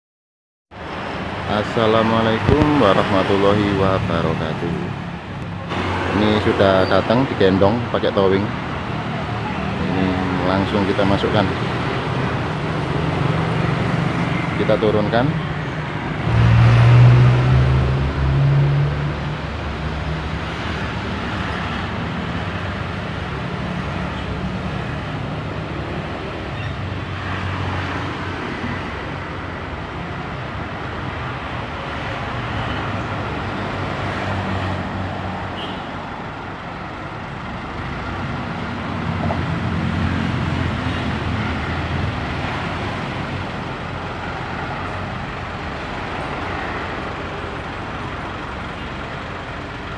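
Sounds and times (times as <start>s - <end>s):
truck diesel engine running: 36.4s - 49.9s.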